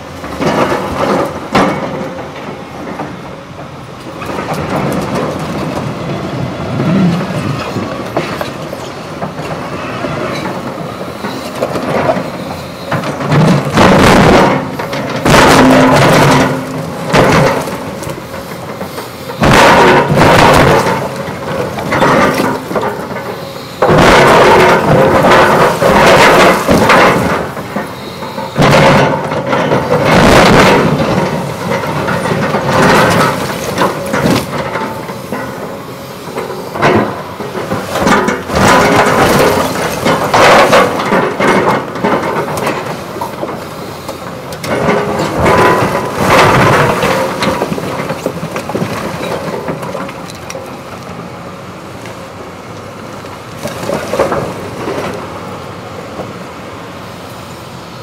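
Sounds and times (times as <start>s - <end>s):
excavator engine running: 0.0s - 58.0s
excavator bucket crashing through concrete: 11.2s - 35.7s, 36.3s - 50.7s, 53.4s - 55.2s.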